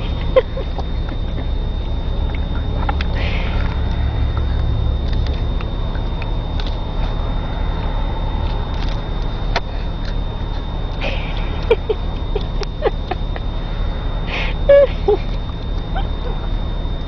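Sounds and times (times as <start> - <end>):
car cabin road rumble: 0.0 - 17.0.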